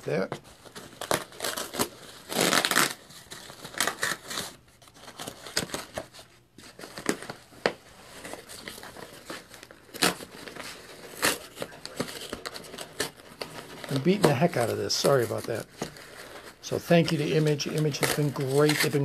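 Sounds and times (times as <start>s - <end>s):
packing paper rustling: 0.0s - 19.0s
package being torn open: 0.6s - 7.4s, 8.2s - 19.0s.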